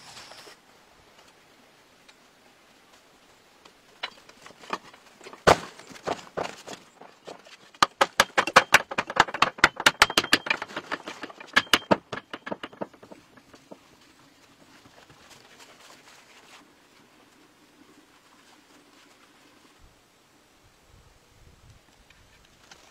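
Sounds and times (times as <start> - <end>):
tool striking and crushing stones: 4.0 - 14.2.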